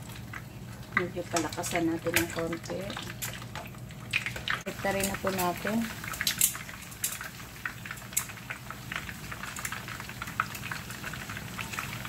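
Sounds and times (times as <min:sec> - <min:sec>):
oil sizzling with crackles and pops: 0:00.0 - 0:12.0
metal tongs clicking against pan: 0:06.2 - 0:07.3.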